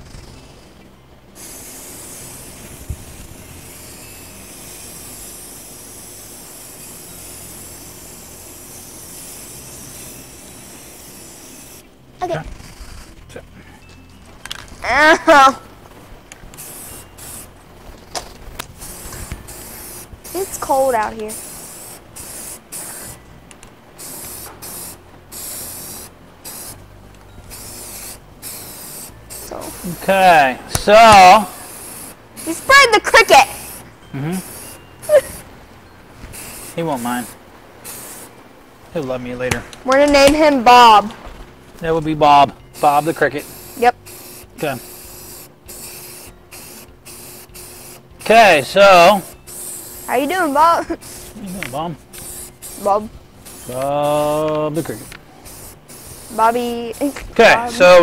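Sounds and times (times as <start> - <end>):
spray can hissing: 1.4 - 11.8, 16.5 - 23.2, 24.0 - 26.9, 27.5 - 35.5, 36.3 - 38.3, 42.7 - 58.0.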